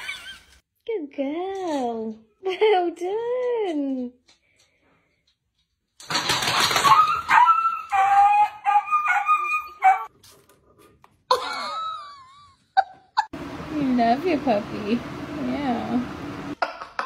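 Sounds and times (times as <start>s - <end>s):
dog yelping and whining: 6.7s - 10.1s.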